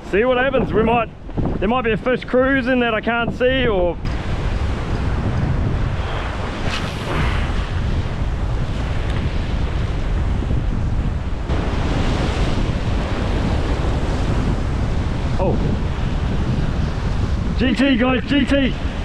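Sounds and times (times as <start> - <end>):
wind buffeting microphone: 0.0 - 19.0
surf breaking on rocks: 4.0 - 19.0.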